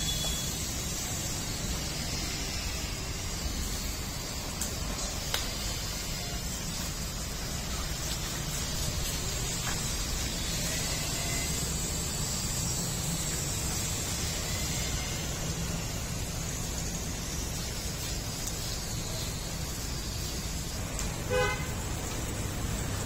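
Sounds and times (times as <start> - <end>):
traffic rumble: 0.0 - 23.0
vehicle horn toot: 21.3 - 21.8.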